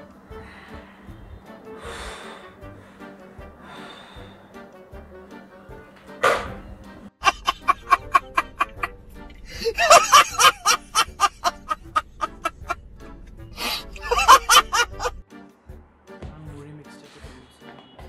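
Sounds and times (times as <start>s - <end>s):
man laughing hard: 7.2s - 12.8s, 13.6s - 15.2s.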